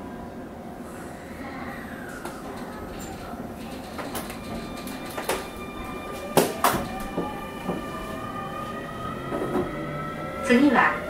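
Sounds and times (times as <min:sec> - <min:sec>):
train hum: 0:00.0 - 0:11.0
train doors knocking shut: 0:03.8 - 0:08.0, 0:09.3 - 0:09.8.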